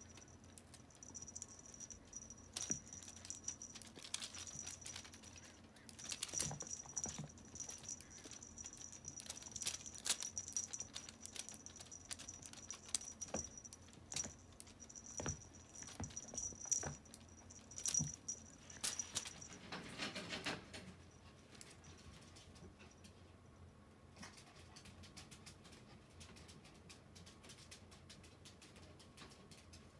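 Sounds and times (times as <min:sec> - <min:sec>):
small bell jingling: 0:00.0 - 0:23.2.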